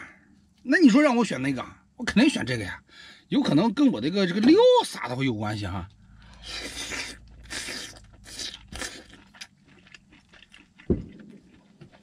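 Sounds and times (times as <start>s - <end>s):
man chewing crunchy food: 5.9s - 12.0s.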